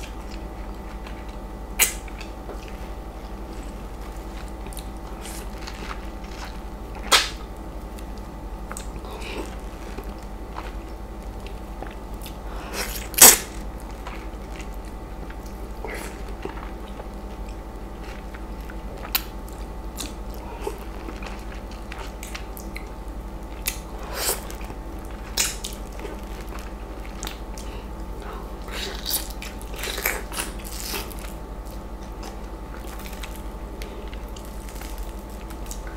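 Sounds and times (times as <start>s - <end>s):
steady low hum: 0.0s - 35.9s
sharp wet smacks: 7.1s - 7.4s
wet mouth biting and sucking: 7.1s - 7.4s.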